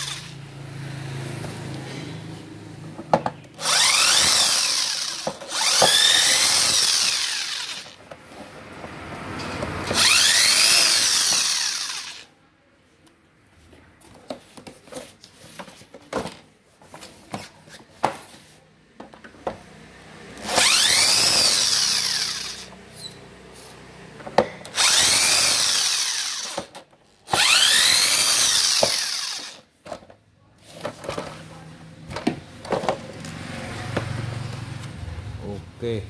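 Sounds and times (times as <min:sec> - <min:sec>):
power drill whining: 0:00.0 - 0:00.5, 0:03.5 - 0:08.0, 0:09.8 - 0:12.3, 0:20.4 - 0:23.2, 0:24.4 - 0:29.7.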